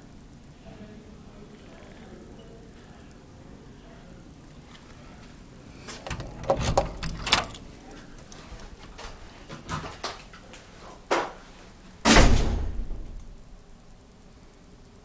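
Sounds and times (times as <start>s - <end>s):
door shutting with a thud: 12.0s - 13.2s.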